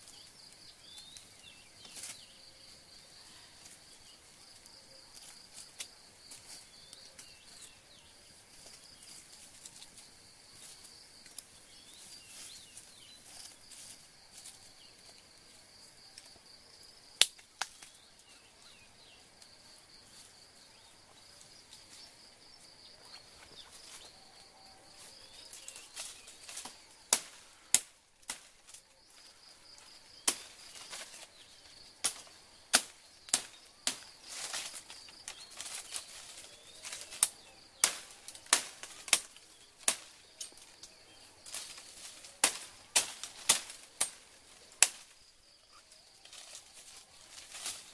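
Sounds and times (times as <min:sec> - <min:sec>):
insects droning: 0:00.0 - 0:47.9
dry twigs snapping: 0:17.2 - 0:18.0, 0:25.4 - 0:28.9, 0:30.2 - 0:31.3, 0:32.0 - 0:45.2, 0:46.2 - 0:47.9.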